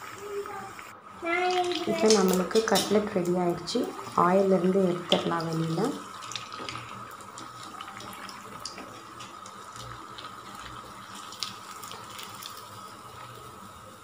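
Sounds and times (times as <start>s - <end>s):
food deep-frying in oil: 0.0s - 14.0s.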